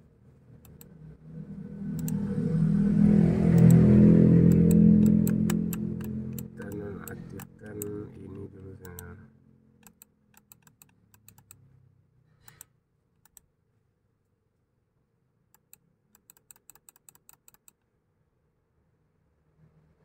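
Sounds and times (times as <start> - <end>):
computer mouse clicks: 0.6 - 1.0, 1.9 - 2.2, 3.5 - 3.8, 4.4 - 9.2, 9.8 - 11.7, 12.4 - 13.5, 15.6 - 17.8
keyboard key clicks: 15.6 - 17.8.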